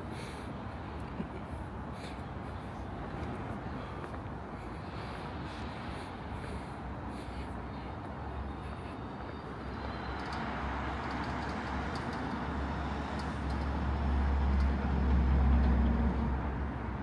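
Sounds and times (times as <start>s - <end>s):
rush of cars on city road: 0.0s - 17.0s.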